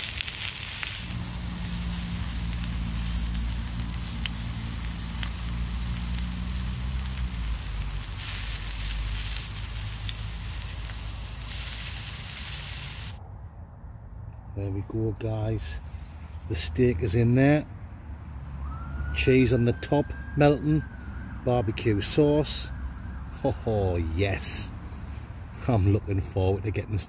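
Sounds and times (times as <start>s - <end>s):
steak sizzling in a pan: 0.0s - 13.2s.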